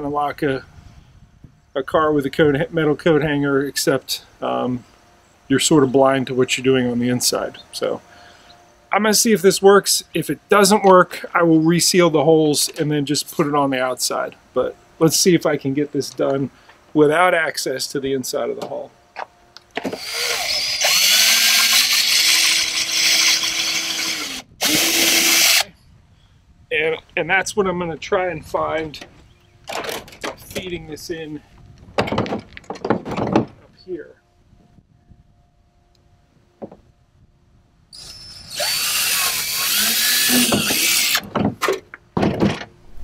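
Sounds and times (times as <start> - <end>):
cordless drill boring into plastic: 19.9 - 25.7, 38.0 - 41.3.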